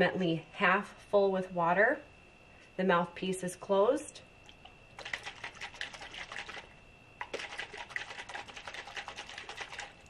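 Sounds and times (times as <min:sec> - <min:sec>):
water sloshing in bottle: 0:04.4 - 0:10.0.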